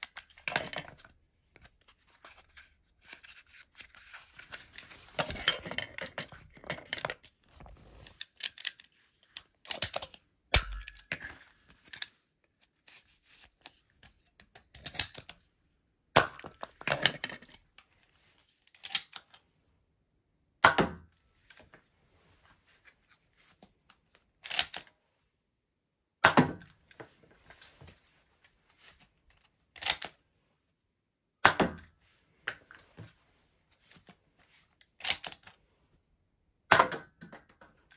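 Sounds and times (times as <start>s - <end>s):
rustling handling noise: 0.0s - 9.6s, 26.9s - 29.6s
toy gun clicks and snaps: 8.2s - 11.1s, 18.8s - 19.3s, 24.4s - 24.9s, 29.8s - 30.1s, 35.0s - 35.5s.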